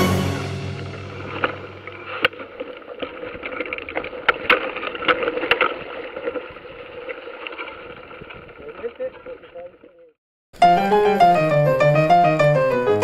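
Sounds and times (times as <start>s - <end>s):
bike rolling over stony trail: 0.8s - 10.2s.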